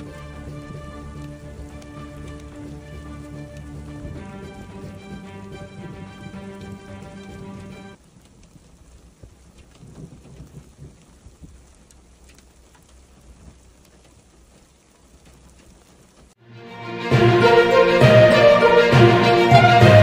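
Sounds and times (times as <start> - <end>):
rain falling on ground: 0.0 - 16.4, 17.1 - 20.0.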